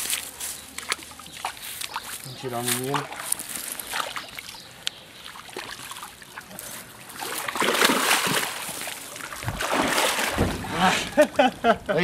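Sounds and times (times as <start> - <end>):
shallow water splashing: 2.8 - 11.6
net frame knocks: 9.5 - 11.0.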